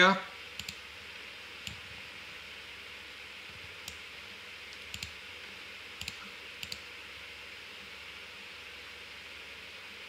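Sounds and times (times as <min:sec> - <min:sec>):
computer mouse clicks: 0:00.6 - 0:00.8, 0:01.6 - 0:01.9, 0:04.7 - 0:05.2, 0:06.0 - 0:06.8.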